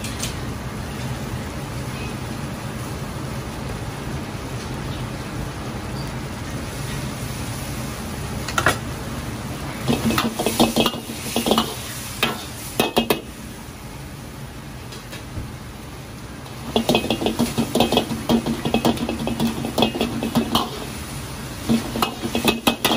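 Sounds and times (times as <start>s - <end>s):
burner hiss: 0.4s - 22.9s
sauce bubbling: 15.8s - 22.9s
metal ladle scraping a wok: 16.6s - 22.9s.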